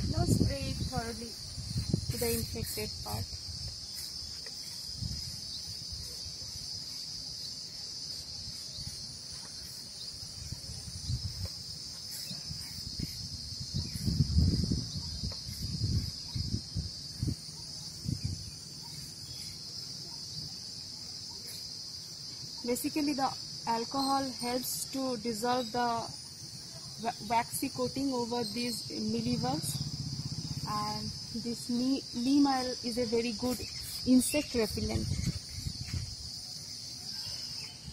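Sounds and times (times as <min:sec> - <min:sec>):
insects droning: 0:00.0 - 0:37.9.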